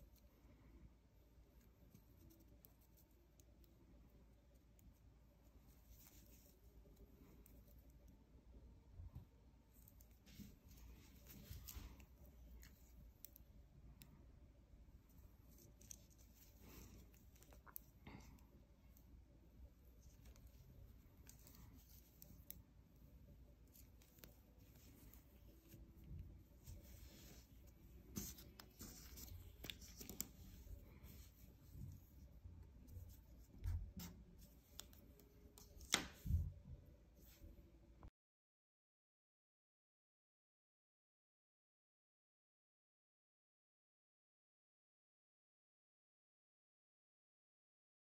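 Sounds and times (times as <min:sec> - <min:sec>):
paper rustling: 0:26.6 - 0:31.8.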